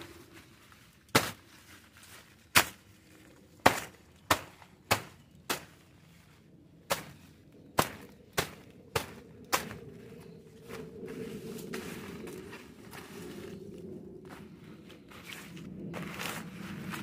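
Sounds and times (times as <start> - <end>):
blade chopping leaves: 1.0 - 3.0, 3.6 - 6.0, 6.8 - 9.9.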